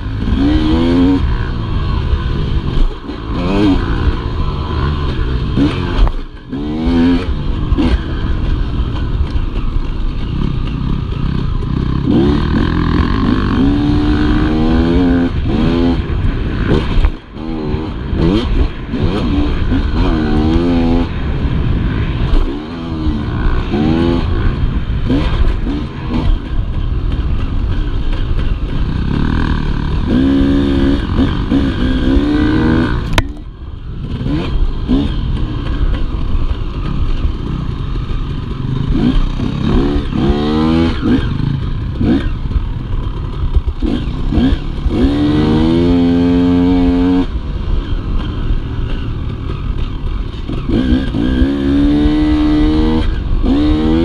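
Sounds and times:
dirt bike engine revving: 0:00.0 - 0:54.0
rumble and rattle over bumps: 0:00.0 - 0:54.0.

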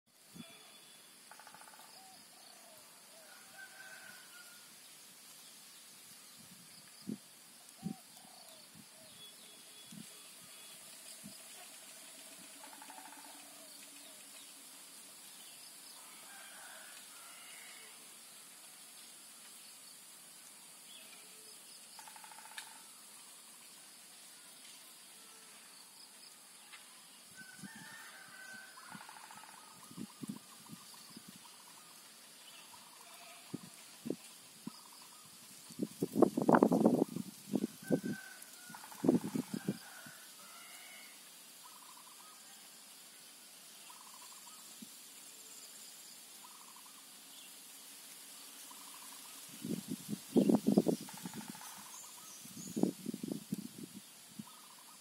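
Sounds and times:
faint high insect-like buzz: 0:00.1 - 0:55.0
faint outdoor ambience: 0:00.1 - 0:55.0
steady high hiss: 0:00.1 - 0:55.0
rapid trilling bird call: 0:11.5 - 0:14.3.

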